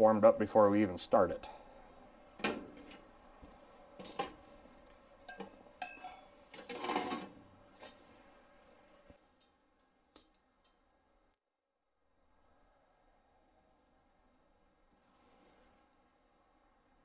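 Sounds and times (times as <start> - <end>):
metallic clanks and rattles: 5.2 - 7.9.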